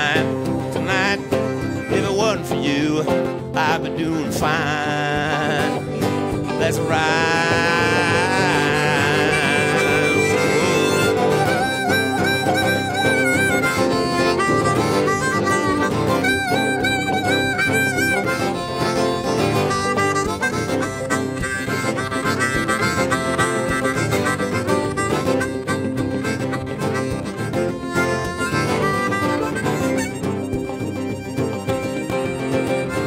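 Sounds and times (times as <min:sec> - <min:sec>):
guitar: 0:00.0 - 0:33.0
harmonica bending notes: 0:00.0 - 0:33.0.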